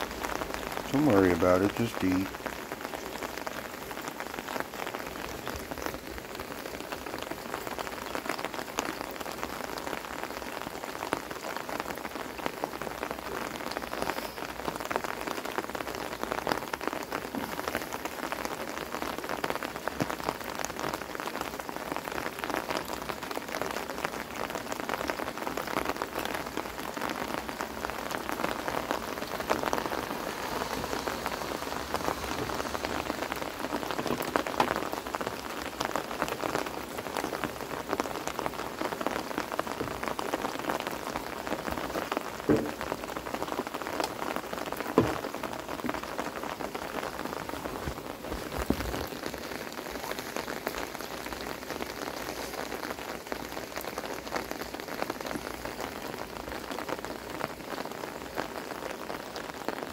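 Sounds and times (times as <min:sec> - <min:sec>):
rain on wooden deck: 0:00.0 - 0:59.9
loud knock: 0:42.5 - 0:42.8.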